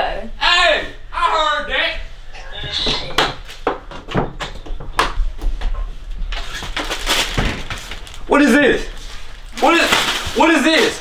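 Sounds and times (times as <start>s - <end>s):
closet door knocks and clicks: 3.2s - 5.2s.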